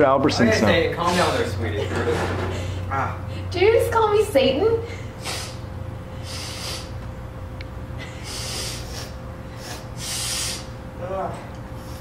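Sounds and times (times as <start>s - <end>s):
man breathing hard: 4.8s - 7.0s, 8.0s - 10.8s, 11.8s - 12.0s.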